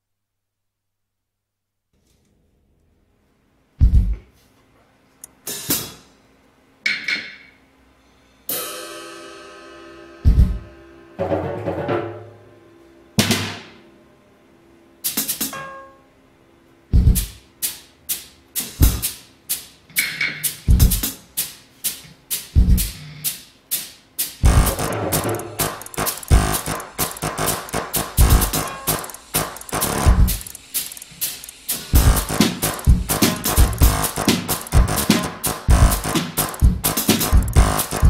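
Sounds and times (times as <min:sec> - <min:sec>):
robot playing acoustic drums: 0:10.2 - 0:12.0, 0:17.0 - 0:19.6, 0:20.4 - 0:38.0.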